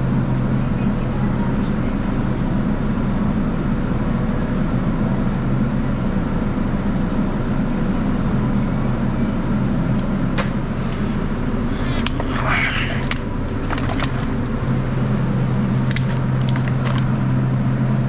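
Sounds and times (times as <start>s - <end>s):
refrigeration fans humming: 0.0s - 18.0s.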